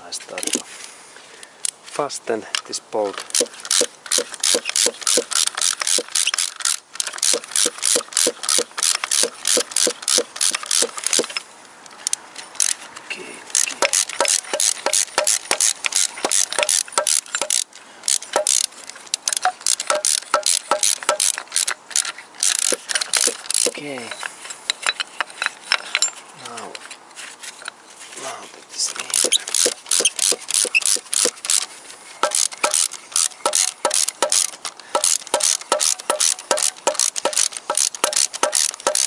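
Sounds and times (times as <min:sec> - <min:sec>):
ratchet wrench clicking: 0:03.1 - 0:11.4, 0:13.5 - 0:26.1, 0:29.1 - 0:31.6, 0:32.2 - 0:39.0.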